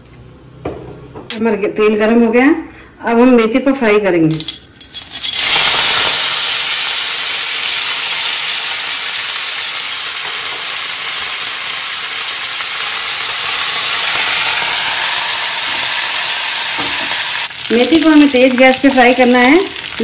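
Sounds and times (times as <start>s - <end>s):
leaves sizzling in hot oil: 4.8s - 20.0s.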